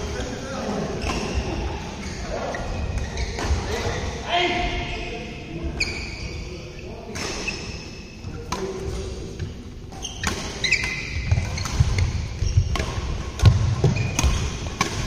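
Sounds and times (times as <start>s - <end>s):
shoes squeaking on court: 1.0s - 4.0s, 5.8s - 6.4s, 9.3s - 15.0s
racket hitting shuttlecock: 10.0s - 15.0s.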